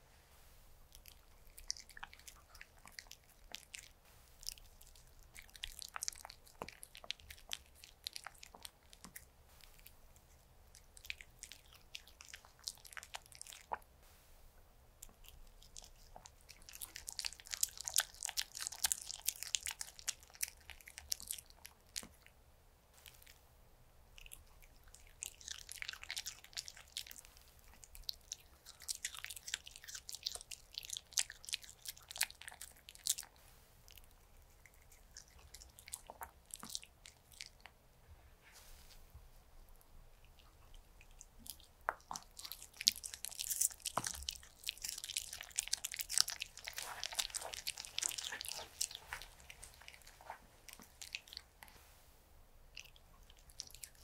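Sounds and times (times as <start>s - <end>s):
dog chewing wetly: 0.9s - 13.9s, 15.0s - 22.3s, 24.2s - 37.8s, 40.1s - 51.8s, 52.7s - 54.0s.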